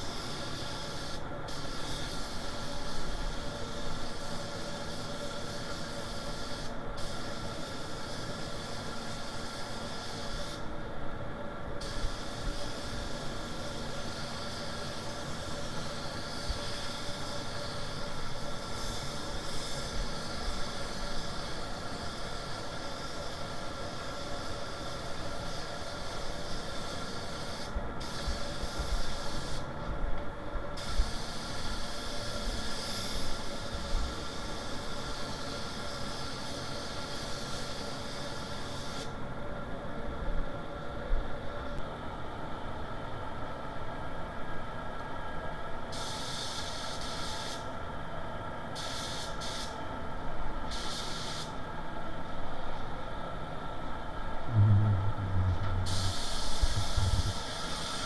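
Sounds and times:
air spray gun hissing: 0.0s - 10.7s, 11.8s - 29.7s, 30.8s - 39.2s, 45.9s - 47.7s, 48.8s - 49.8s, 50.7s - 51.6s, 55.7s - 58.0s
ventilation drone: 0.0s - 34.5s, 51.5s - 58.0s
low uneven rumble: 54.5s - 57.3s.

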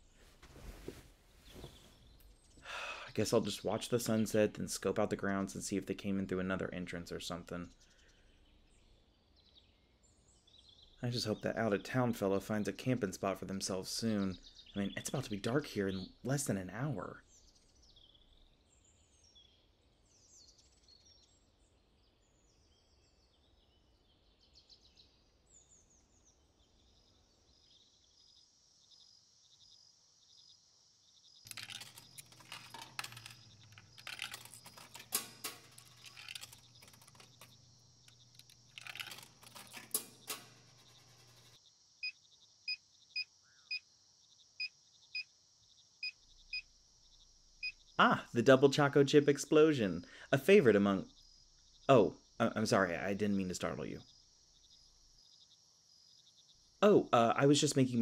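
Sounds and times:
birds chirping: 0.0s - 20.8s, 31.2s - 41.6s, 44.4s - 58.0s.

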